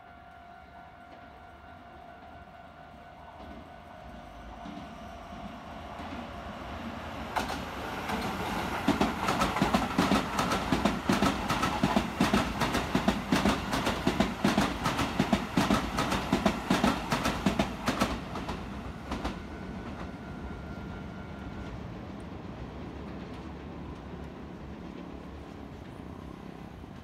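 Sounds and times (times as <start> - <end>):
train passing rumble: 0.0 - 27.0
wheels clacking over rail joints: 7.3 - 19.4.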